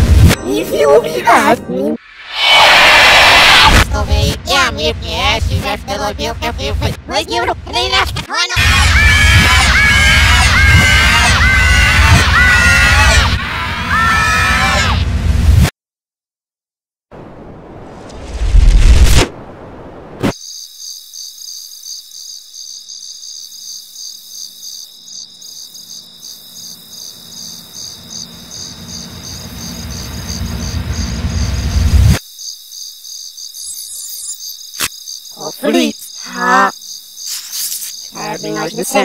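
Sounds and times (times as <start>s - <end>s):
warbling voice-like sounds: 2.0s - 3.9s
cricket chirping: 20.3s - 39.0s.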